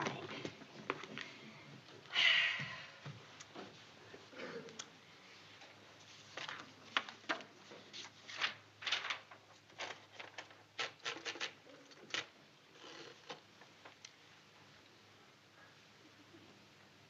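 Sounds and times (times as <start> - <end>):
papers and books rustling: 5.5 - 14.3.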